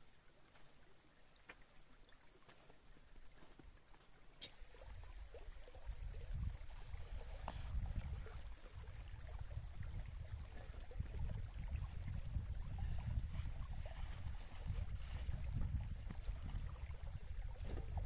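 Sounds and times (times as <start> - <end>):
shallow running water trickling: 0.0 - 18.0
wind buffeting microphone: 5.7 - 18.0.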